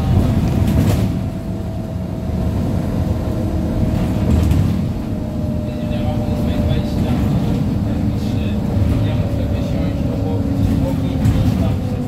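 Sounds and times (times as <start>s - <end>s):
bus engine and road rumble: 0.0s - 12.0s
drive axle whine: 0.0s - 12.0s.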